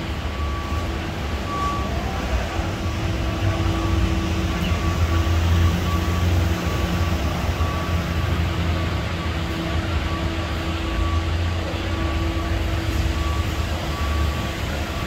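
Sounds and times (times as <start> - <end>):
vehicle low rumble: 0.0 - 15.0
faint high beep: 0.3 - 2.7, 9.2 - 15.0.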